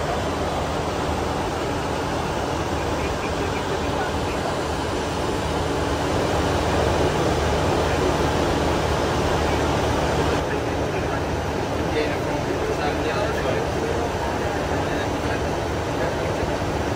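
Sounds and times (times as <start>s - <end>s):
rushing air noise in cockpit: 0.0s - 16.9s.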